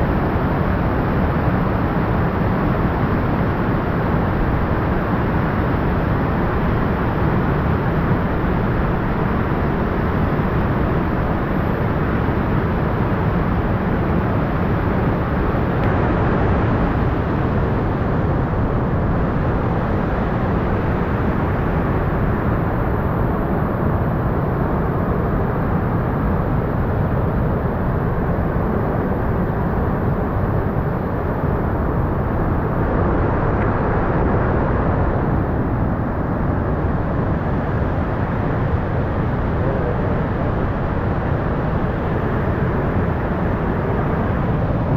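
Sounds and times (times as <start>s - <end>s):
waterfall roaring: 23.9s - 44.9s.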